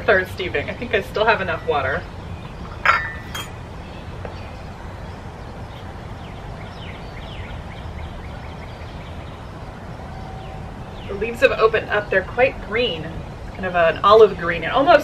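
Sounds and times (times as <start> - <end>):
porcelain teaware clinking: 2.7 - 3.6.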